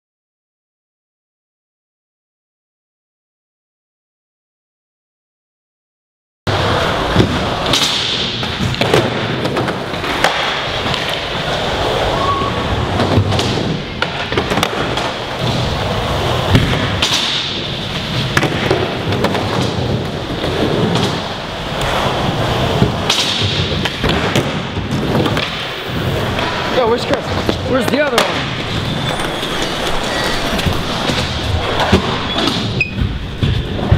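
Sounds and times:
skateboard clacks and thumps: 6.5s - 11.8s, 12.8s - 33.9s
skateboard wheels rolling: 6.5s - 33.9s.

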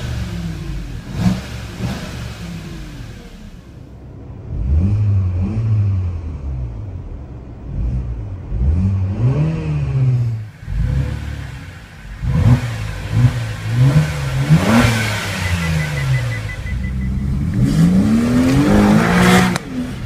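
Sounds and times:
car engine revving: 0.0s - 20.0s
exhaust cracks: 6.6s - 20.0s.

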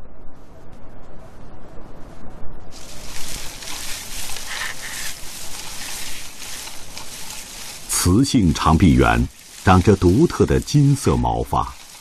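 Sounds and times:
steady high hiss: 2.6s - 12.0s.

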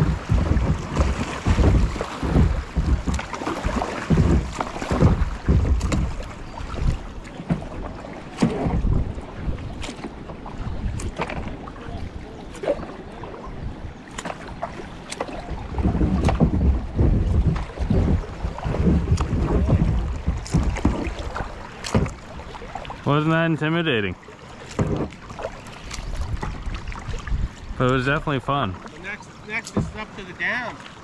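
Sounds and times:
wind buffeting microphone: 0.0s - 23.1s, 25.8s - 28.8s
paddle splashes: 0.0s - 31.0s
rushing water: 0.0s - 31.0s
sharp knocks: 24.7s - 25.2s.

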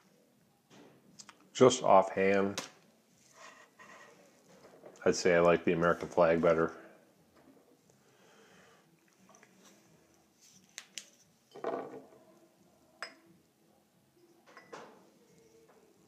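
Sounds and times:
drinking glasses clinking: 11.5s - 12.0s, 13.0s - 13.3s, 14.4s - 14.9s.

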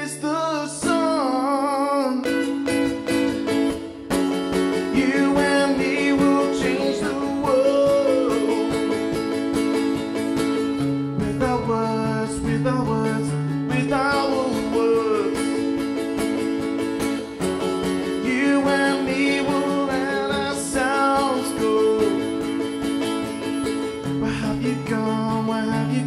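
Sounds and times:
man singing: 0.0s - 2.5s, 4.6s - 9.5s, 11.0s - 16.0s, 17.9s - 23.0s, 23.6s - 26.0s
strummed acoustic guitar: 0.0s - 26.0s.

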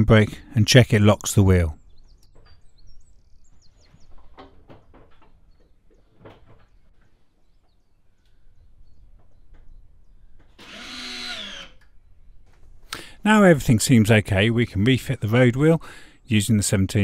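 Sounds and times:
faint knocks and clicks: 3.8s - 8.4s.

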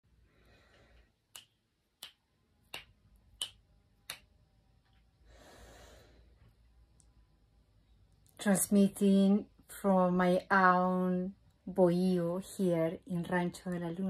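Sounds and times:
fingers snapping: 1.3s - 4.4s.

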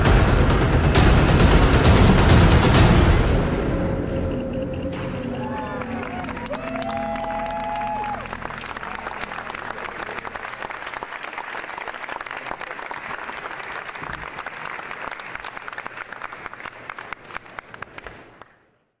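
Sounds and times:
crowd applauding: 5.0s - 18.9s.

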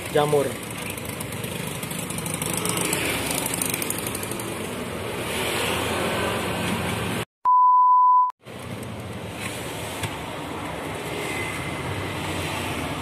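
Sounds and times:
street background noise: 0.0s - 7.3s, 8.4s - 13.0s
test-tone beep: 7.5s - 8.3s.

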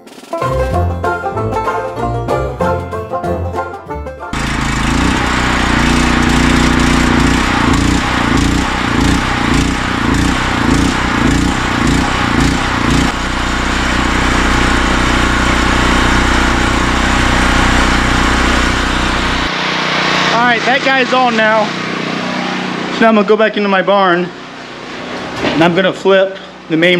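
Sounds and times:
generator engine running: 4.3s - 26.9s.

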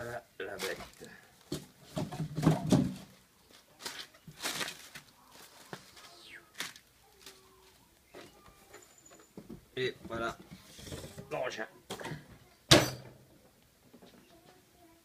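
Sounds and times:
plastic bags rustling: 0.4s - 8.4s.

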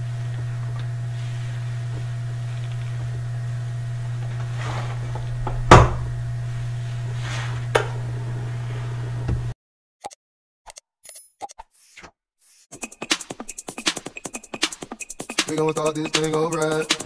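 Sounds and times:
steady low hum: 0.0s - 9.5s.

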